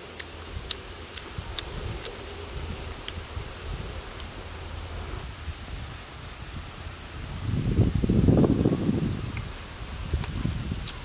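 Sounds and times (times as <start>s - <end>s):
chewing clicks: 0.0s - 3.3s, 10.2s - 11.0s
low rumble: 0.0s - 10.8s.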